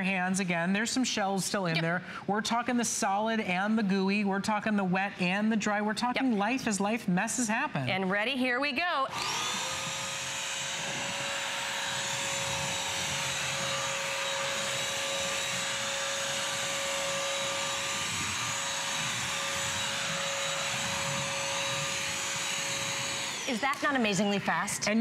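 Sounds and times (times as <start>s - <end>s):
vacuum mop motor whine: 9.1s - 24.3s.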